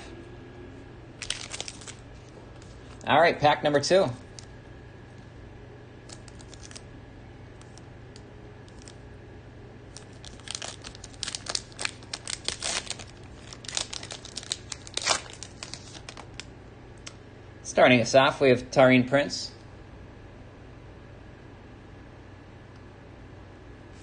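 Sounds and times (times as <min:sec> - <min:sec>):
card pack wrapper crinkling: 0:01.2 - 0:03.0, 0:06.0 - 0:06.9, 0:07.6 - 0:09.0, 0:09.9 - 0:16.5.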